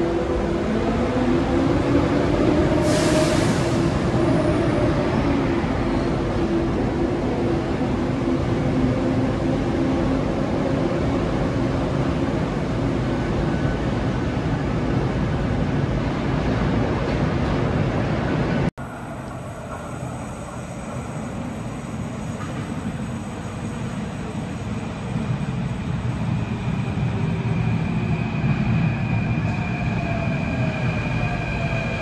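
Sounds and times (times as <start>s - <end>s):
train wheels running on rails: 2.1s - 32.0s
air hiss burst: 2.8s - 3.8s.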